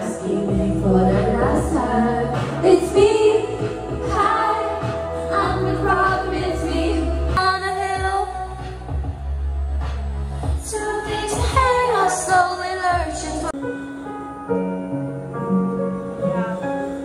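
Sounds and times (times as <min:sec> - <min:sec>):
steady bass line: 0:00.0 - 0:13.5
woman singing pop music: 0:00.0 - 0:14.6.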